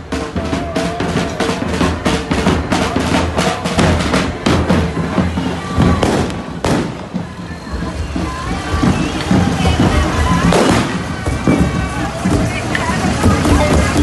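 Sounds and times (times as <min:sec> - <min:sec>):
bass drum beating: 0:00.0 - 0:14.0
snare drum beating: 0:00.0 - 0:14.0.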